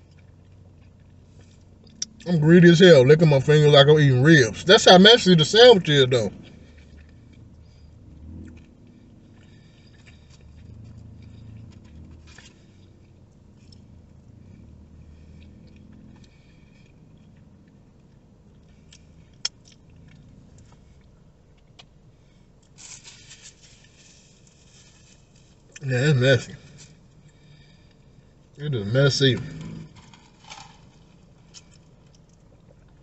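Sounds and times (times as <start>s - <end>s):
man chewing and lip-smacking: 0.0s - 2.3s, 6.3s - 25.8s, 29.5s - 33.0s.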